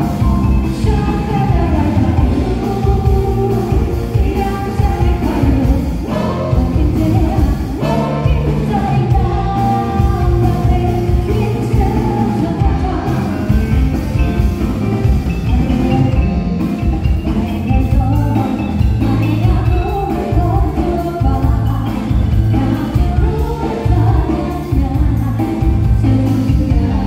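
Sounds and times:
person singing: 0:00.0 - 0:14.4, 0:15.3 - 0:27.0
live band playing: 0:00.0 - 0:27.0.

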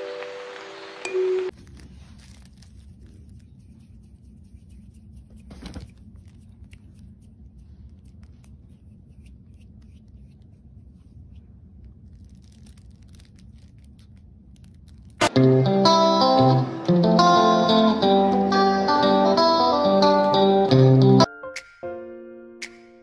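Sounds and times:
faint clicks and rustles: 0:01.6 - 0:15.2.

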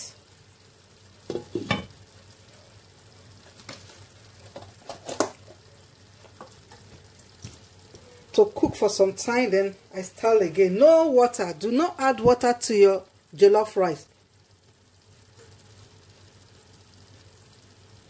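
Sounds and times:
rice sizzling in a pan: 0:00.0 - 0:18.0
glass lid clattering on frying pan: 0:01.3 - 0:02.0.

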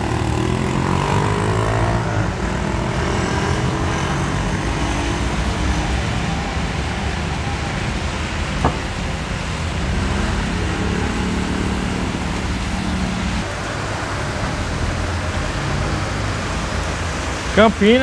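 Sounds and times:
tyres hissing on wet road: 0:00.0 - 0:18.0
vehicle engine humming: 0:00.0 - 0:18.0.

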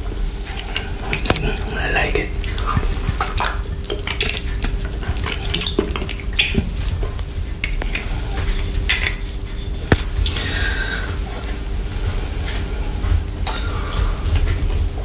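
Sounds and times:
wet mouth licking sounds: 0:00.5 - 0:11.8.

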